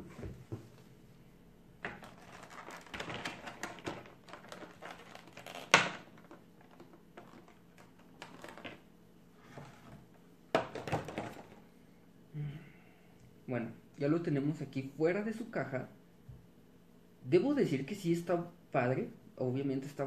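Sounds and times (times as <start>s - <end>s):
plastic bag crinkling: 1.8s - 8.8s.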